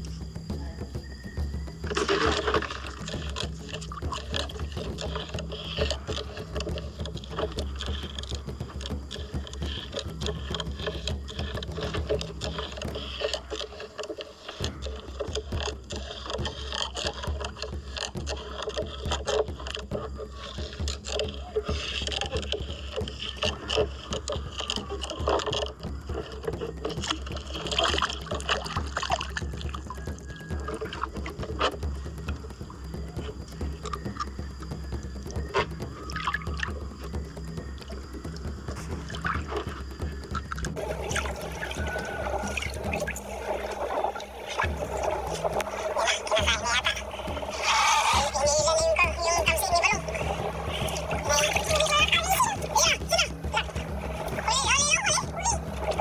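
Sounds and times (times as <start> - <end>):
water lapping against boat hull: 0.0 - 56.0
steady low rumble: 31.0 - 56.0.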